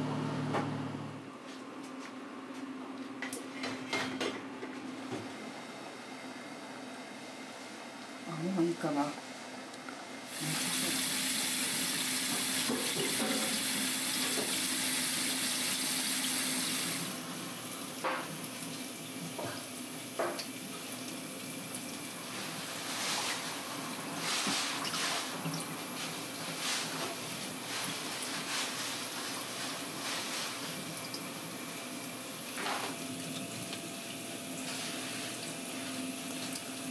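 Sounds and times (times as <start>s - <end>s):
tap water running into metal pot: 10.3s - 17.0s.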